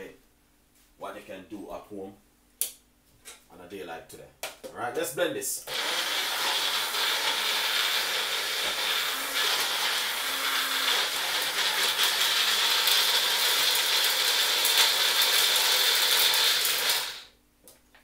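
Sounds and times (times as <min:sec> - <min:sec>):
blender motor whining: 0:05.7 - 0:17.3
food pieces clattering in blender: 0:06.0 - 0:17.2.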